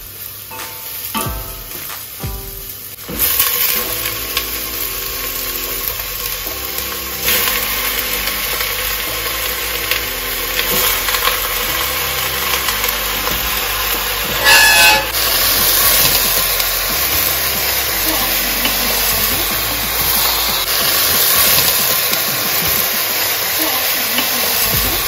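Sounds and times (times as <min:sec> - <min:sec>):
kitchen hiss: 0:00.0 - 0:25.0
slow background music: 0:00.0 - 0:25.0.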